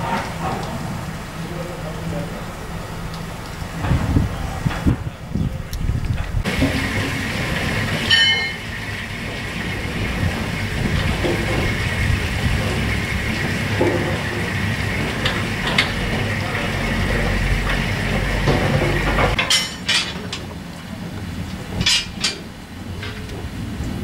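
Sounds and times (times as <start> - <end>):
steam locomotives rumbling: 0.0 - 24.0
metallic clanks: 6.1 - 20.9, 21.5 - 23.4.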